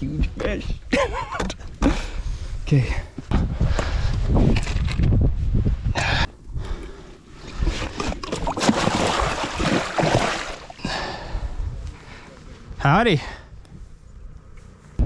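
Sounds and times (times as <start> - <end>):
fish thrashing and splashing water: 7.4 - 10.8.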